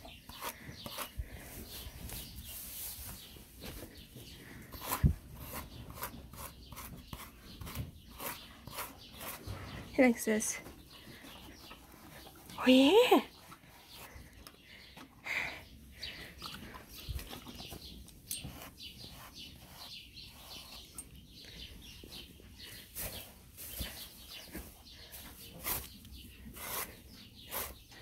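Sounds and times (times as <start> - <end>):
brush swishing over horse coat: 1.6 - 3.3.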